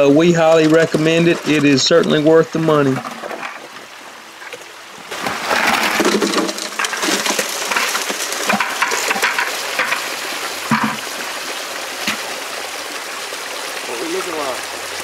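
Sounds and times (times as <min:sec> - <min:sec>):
water rushing through sluice: 0:00.0 - 0:15.0
gravel clattering in metal hopper: 0:05.1 - 0:10.1.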